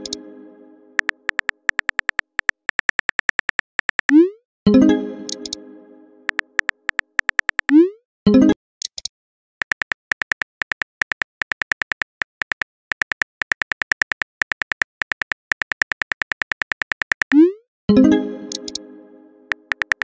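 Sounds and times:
keyboard typing clicks: 0:01.0 - 0:04.2, 0:05.2 - 0:05.6, 0:06.3 - 0:07.8, 0:09.6 - 0:17.4, 0:18.5 - 0:18.8, 0:19.5 - 0:20.0
message pop: 0:05.2 - 0:05.6.

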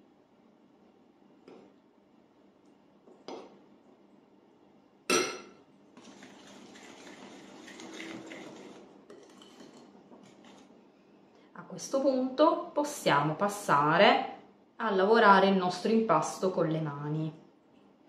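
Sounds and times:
whisk scraping ceramic bowl: 0:06.0 - 0:10.7.

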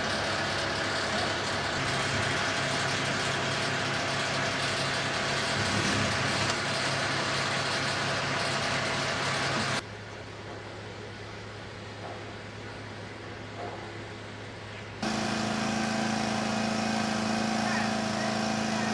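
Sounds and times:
diesel engine idling: 0:00.0 - 0:09.9, 0:15.0 - 0:18.9.

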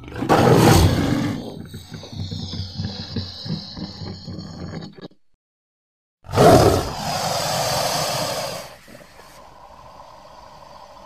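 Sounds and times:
loud creature roar: 0:06.3 - 0:08.8
low pulsing creature growl: 0:06.3 - 0:11.0.

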